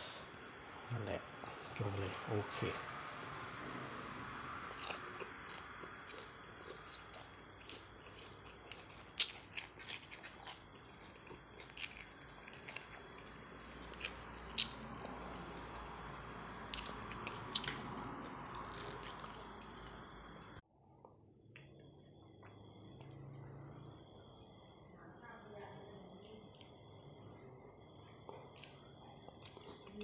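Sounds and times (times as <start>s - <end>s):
person chewing crunchy food: 3.7s - 20.4s, 28.2s - 30.0s.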